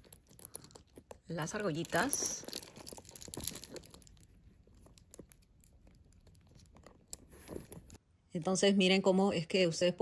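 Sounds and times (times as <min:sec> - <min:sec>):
metal chain strap clinking: 0:00.0 - 0:05.6
clicks and rustling of handbag: 0:00.0 - 0:08.0.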